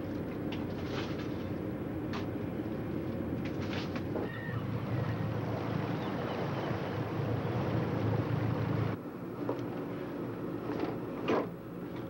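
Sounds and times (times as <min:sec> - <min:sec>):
low engine hum below deck: 0:00.0 - 0:12.0
water and wind rushing past hull: 0:01.7 - 0:09.0.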